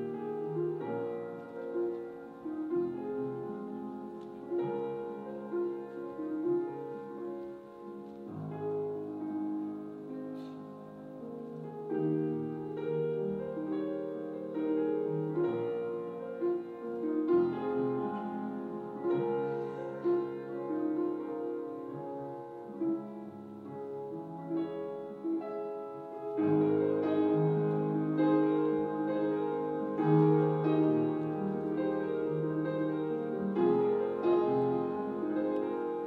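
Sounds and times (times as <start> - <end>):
classical piano music: 0.0 - 36.0.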